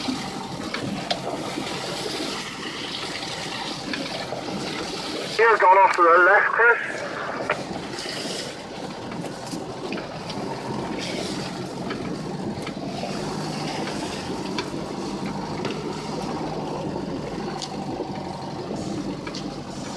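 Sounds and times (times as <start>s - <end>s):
engine and tyre rumble: 0.0s - 19.9s
vehicle knocks and rattles: 8.8s - 19.9s.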